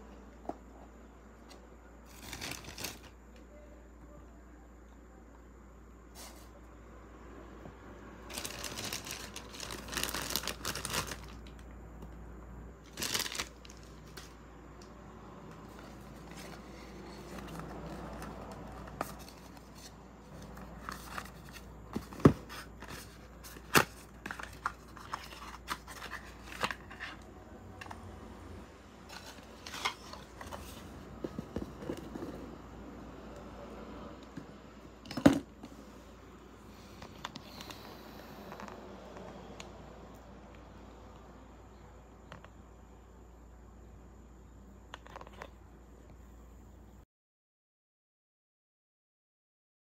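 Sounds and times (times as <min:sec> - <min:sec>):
packaging rustling and crinkling: 0:02.1 - 0:03.1, 0:08.3 - 0:11.6, 0:12.8 - 0:14.4, 0:15.7 - 0:27.2, 0:29.1 - 0:32.4.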